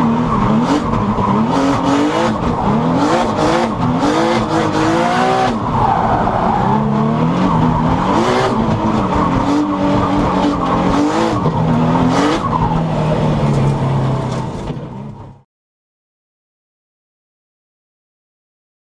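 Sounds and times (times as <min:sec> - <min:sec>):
car engine revving: 0:00.0 - 0:14.9.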